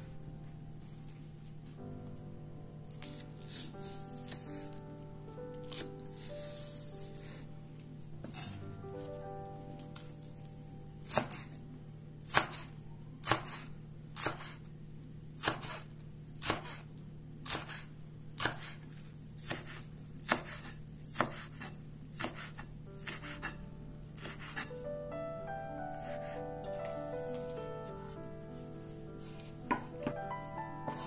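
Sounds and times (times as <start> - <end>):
knife chopping on wooden board: 8.2 - 8.6, 11.0 - 11.6, 12.3 - 14.6, 15.4 - 16.8, 17.4 - 18.8, 19.4 - 23.5, 24.2 - 24.7.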